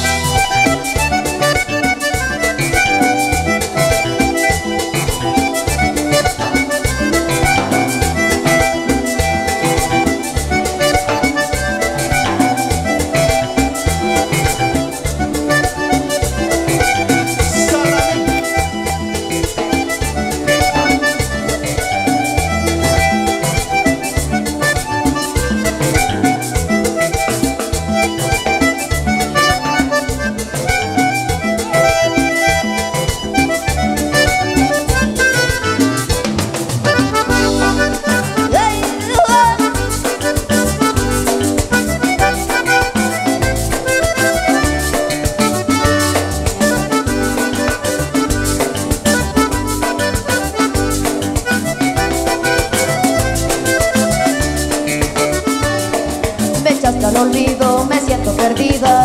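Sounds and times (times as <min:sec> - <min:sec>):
bass guitar: 0:00.0 - 0:59.0
button accordion melody: 0:00.0 - 0:59.0
drums and percussion: 0:00.0 - 0:59.0.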